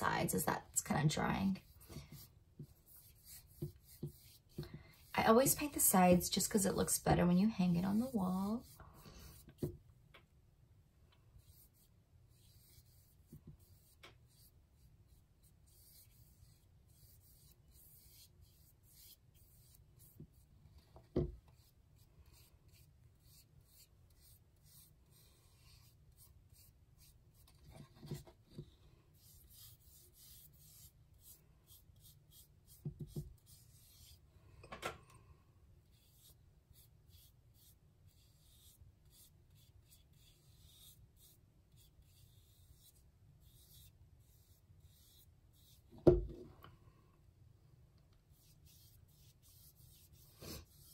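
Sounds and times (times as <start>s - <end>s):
paintbrush rubbing on canvas: 1.1s - 9.8s, 11.4s - 34.2s, 35.9s - 45.9s, 48.3s - 50.9s.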